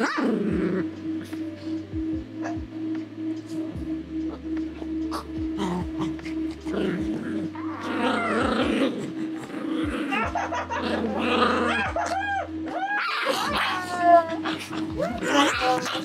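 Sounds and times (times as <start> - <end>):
dogs growling in play: 0.0 - 1.4, 4.3 - 16.0
dog whining: 5.1 - 10.4, 11.0 - 16.0.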